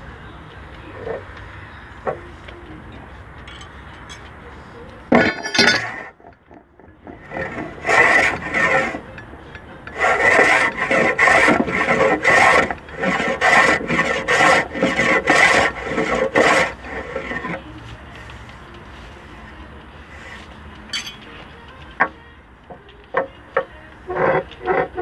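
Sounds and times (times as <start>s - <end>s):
hand plane shaving wood: 7.0s - 18.6s, 23.1s - 25.0s.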